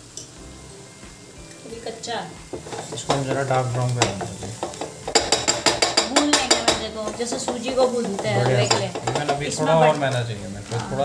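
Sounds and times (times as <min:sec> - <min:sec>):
light sizzle: 0:00.0 - 0:11.0
wooden spatula scraping a pan: 0:02.5 - 0:10.1.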